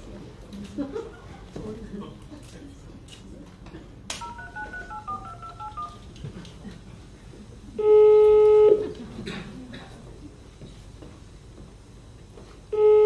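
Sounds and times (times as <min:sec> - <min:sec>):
dialing beeps: 0:04.2 - 0:06.0
telephone ring tone: 0:04.2 - 0:06.0.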